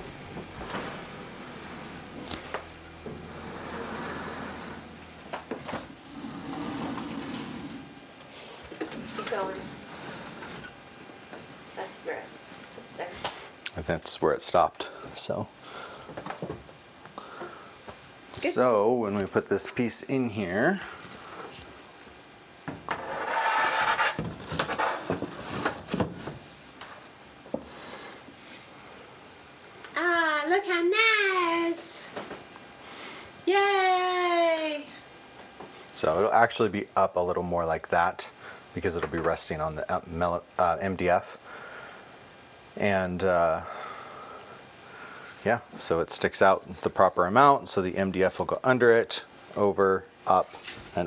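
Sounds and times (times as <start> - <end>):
gas range scraping across floor: 0.0 - 10.8, 22.7 - 26.7.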